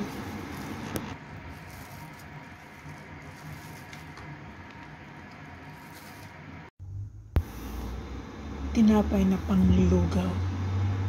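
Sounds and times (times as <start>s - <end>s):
plastic glove crinkling: 0.0s - 6.7s.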